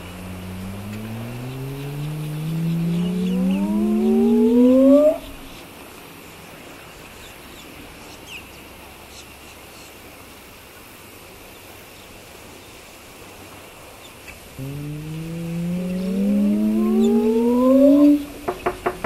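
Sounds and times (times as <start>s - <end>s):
faint chirps: 0.0s - 5.6s, 14.6s - 18.4s
outdoor background noise: 0.0s - 19.0s.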